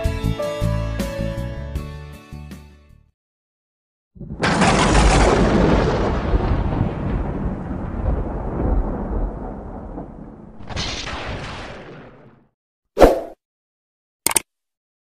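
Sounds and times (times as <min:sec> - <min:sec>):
thunder crack and rumble: 0:04.2 - 0:12.4.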